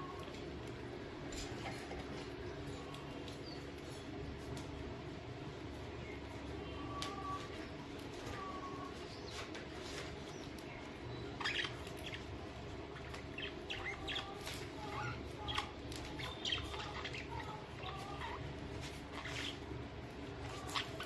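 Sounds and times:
budgerigars chirping: 11.2 - 12.3, 12.9 - 18.4.

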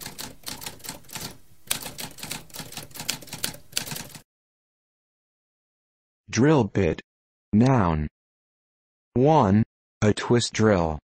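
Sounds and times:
typewriter keys striking: 0.0 - 4.2.

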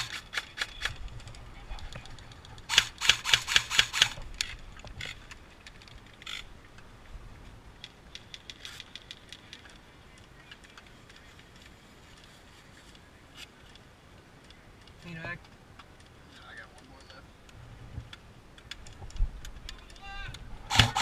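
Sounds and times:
distant airsoft guns firing: 2.7 - 4.2, 20.7 - 21.0.

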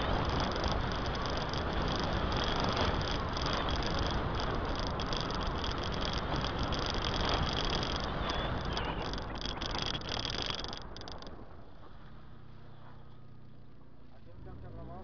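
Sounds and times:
wind noise: 0.0 - 11.7
road noise: 0.0 - 15.0.

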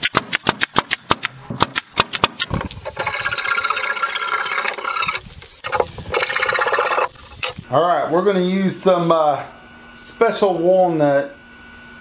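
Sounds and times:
nail gun firing: 0.0 - 3.0
hand tool rasping on wood: 2.9 - 7.1.

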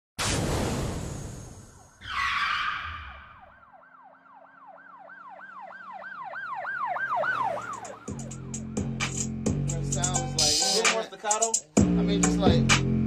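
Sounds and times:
siren-like yelp tone: 1.6 - 8.8.

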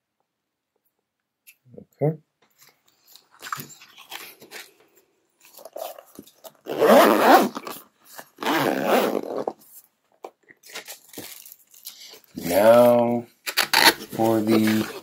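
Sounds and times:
case being zipped shut: 5.6 - 9.6.

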